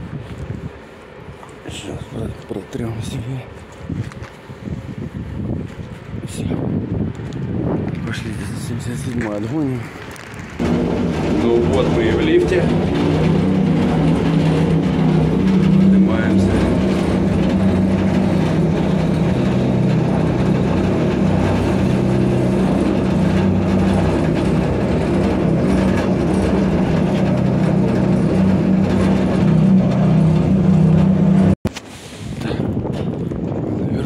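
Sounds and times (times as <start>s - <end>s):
lift mechanical hum: 6.6s - 31.6s.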